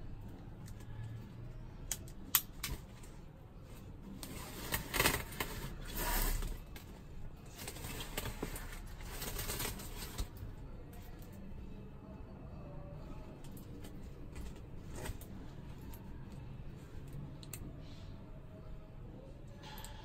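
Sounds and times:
plastic rubbing and scraping: 3.7 - 10.4.

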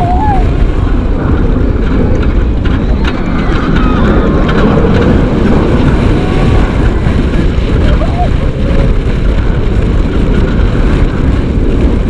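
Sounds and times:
faint wavering cries: 0.0 - 0.6
roller coaster rumble: 0.0 - 12.0
wind buffeting microphone: 0.0 - 12.0.

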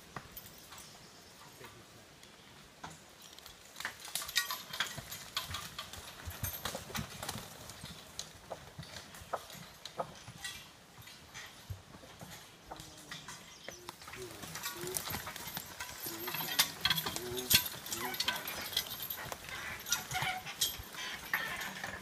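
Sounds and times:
horse hooves clopping: 0.0 - 22.0.

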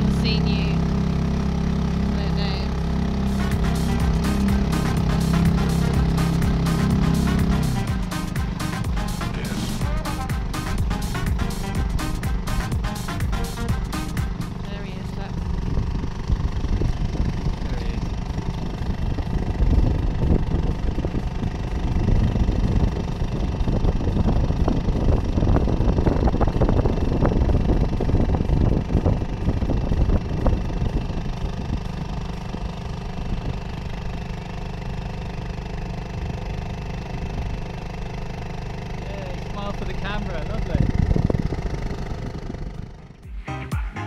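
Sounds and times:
rough rushing noise: 0.0 - 24.4
outboard motor running: 0.0 - 43.9.

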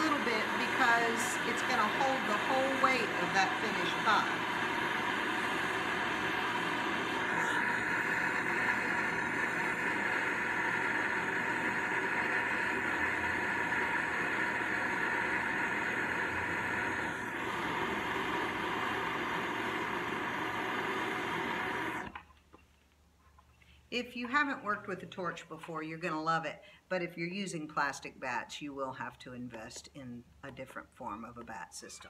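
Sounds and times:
torch flame hissing: 0.0 - 22.2.

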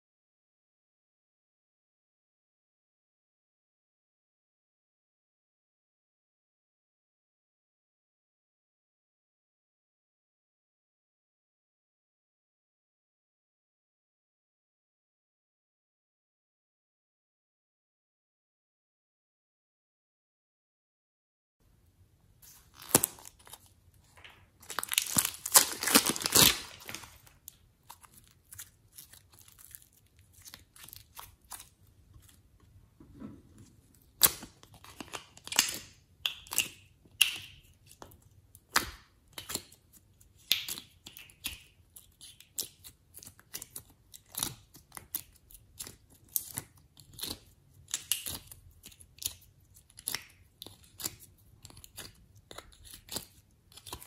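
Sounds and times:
plastic wrap crinkling and tearing: 22.4 - 31.8
clay clicks and crackles: 22.4 - 54.0.

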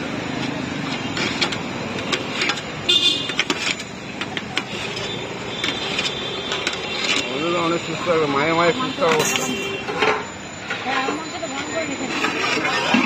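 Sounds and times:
street traffic: 0.0 - 13.0
car horn toot: 2.9 - 3.4, 8.6 - 10.0
spoons clinking on steel bowl: 9.2 - 9.8.

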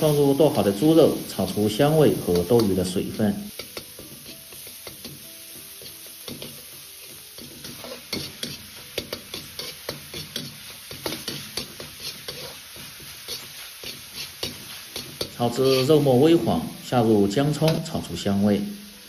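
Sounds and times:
meat sizzling in oil: 0.0 - 19.0
metal ladle scraping a wok: 3.5 - 16.4.

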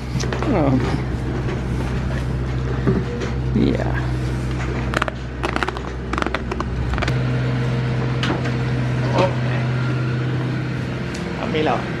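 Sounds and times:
machine humming: 0.0 - 12.0
goat chewing crunchily: 4.6 - 7.1.

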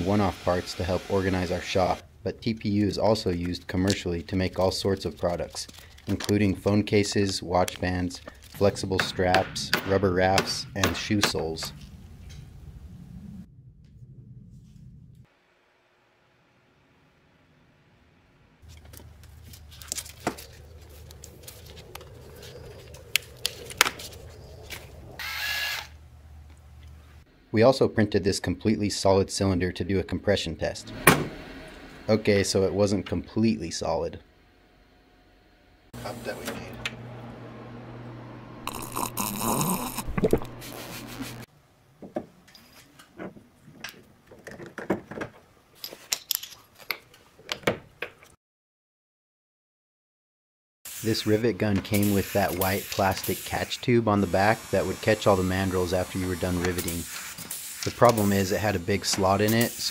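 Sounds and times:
loud hiss: 0.0 - 2.0, 50.9 - 59.9
handling rustles: 18.6 - 25.0
low steady hum: 18.7 - 41.5.

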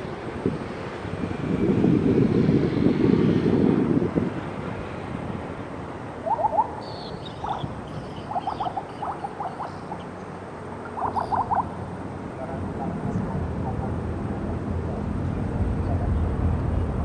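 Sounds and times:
distant jet engine rumble: 0.0 - 17.0
animal croaking calls: 6.2 - 10.1, 10.9 - 11.8.

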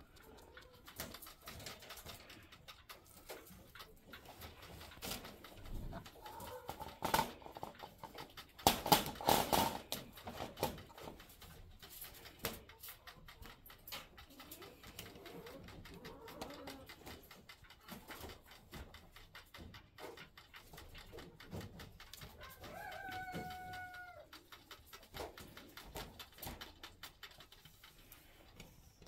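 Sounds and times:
wire cage rattling: 0.0 - 12.8.

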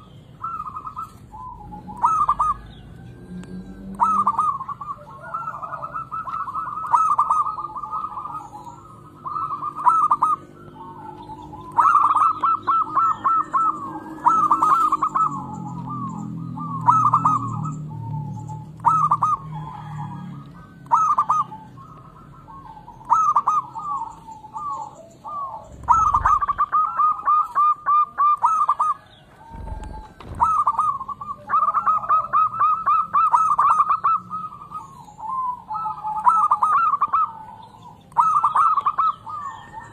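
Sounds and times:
dove cooing: 0.0 - 39.9
dull low thumps: 29.5 - 31.0.

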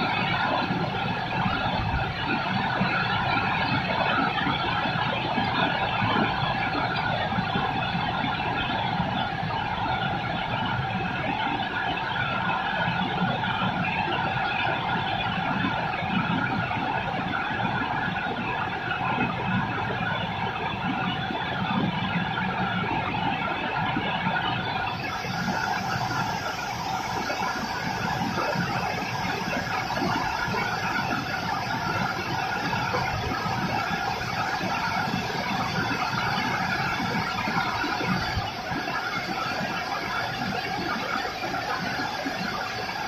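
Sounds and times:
steady rain: 21.2 - 43.0.

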